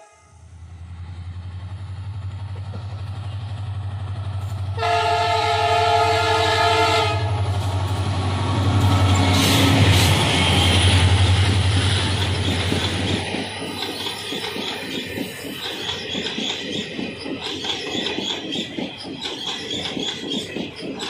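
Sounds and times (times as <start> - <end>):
diesel locomotive engine throbbing: 0.0 - 21.0
wheel and rail noise: 0.6 - 21.0
locomotive horn blast: 4.8 - 7.5.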